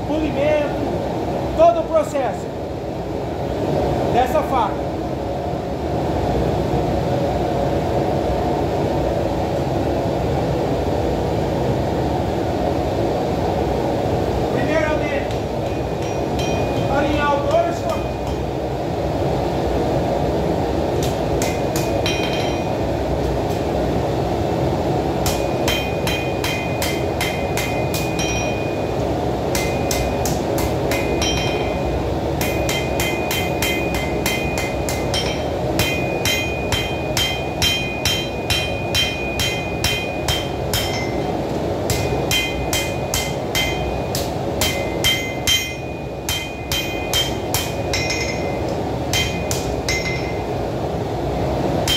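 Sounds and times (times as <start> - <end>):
hammer striking steel on anvil: 15.3 - 18.5, 21.0 - 22.8, 25.2 - 28.9, 29.5 - 50.5.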